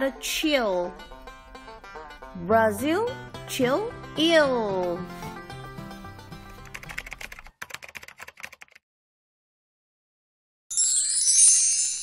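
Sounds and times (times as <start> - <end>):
keyboard typing clicks: 6.6 - 8.8.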